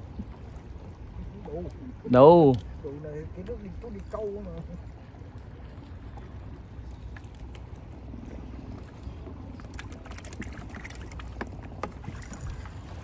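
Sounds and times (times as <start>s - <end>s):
water and wind rumble: 0.0s - 13.0s.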